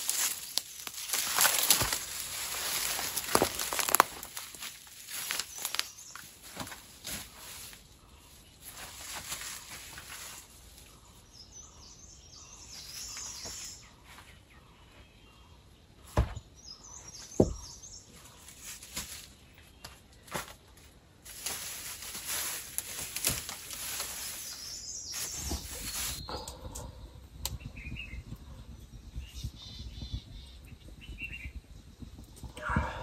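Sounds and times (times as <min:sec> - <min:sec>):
undergrowth rustling and crackling: 0:00.0 - 0:11.7, 0:12.3 - 0:14.6, 0:16.8 - 0:26.5
birds chirping: 0:00.0 - 0:33.0.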